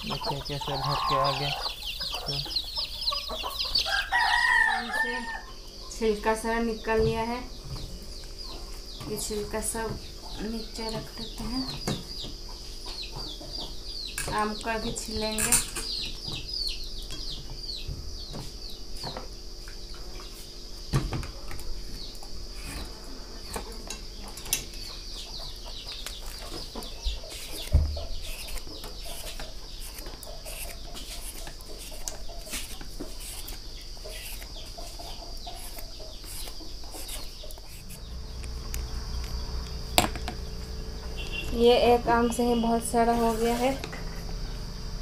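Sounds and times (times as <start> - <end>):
insect drone: 0.0 - 13.0, 13.8 - 45.0
chickens clucking: 0.0 - 45.0
knife shaving mango: 27.2 - 38.0.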